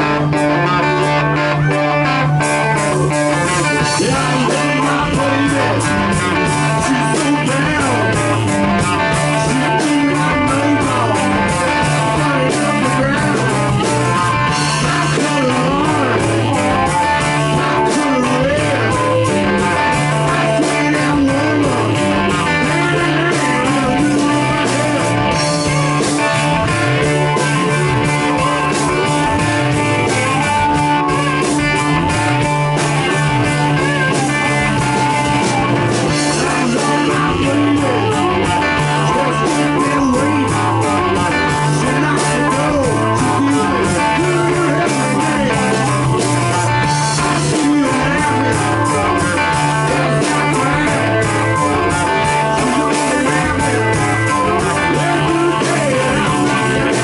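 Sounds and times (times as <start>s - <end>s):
bass guitar: 0.0s - 57.0s
drum kit: 0.0s - 57.0s
electric guitar: 0.0s - 57.0s.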